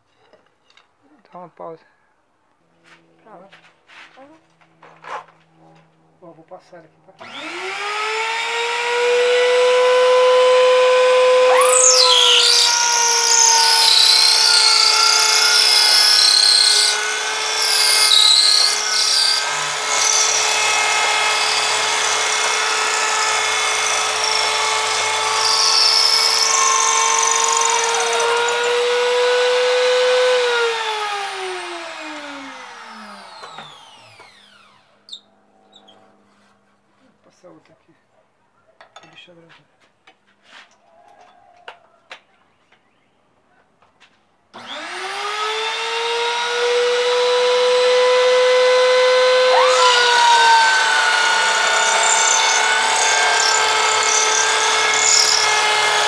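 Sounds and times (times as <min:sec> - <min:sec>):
router winding down: 0:07.2 - 0:35.0, 0:44.6 - 0:56.0
router motor whine: 0:07.2 - 0:35.9, 0:44.6 - 0:56.0
scratchy wood cutting noise: 0:07.2 - 0:36.7, 0:44.6 - 0:56.0.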